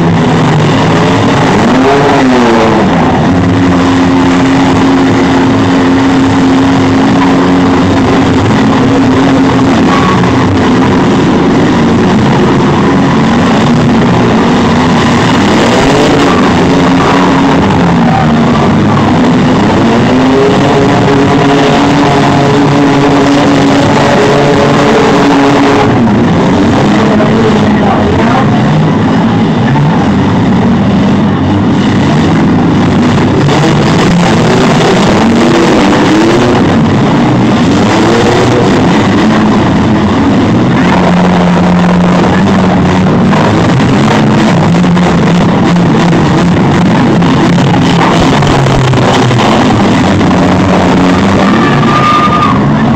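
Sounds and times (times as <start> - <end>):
engines revving: 0.0 - 52.9.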